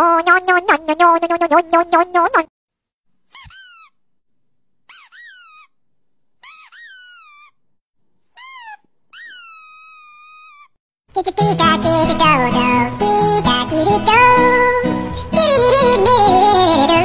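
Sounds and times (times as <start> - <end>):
puppy whining: 6.4 - 7.6, 8.4 - 10.8.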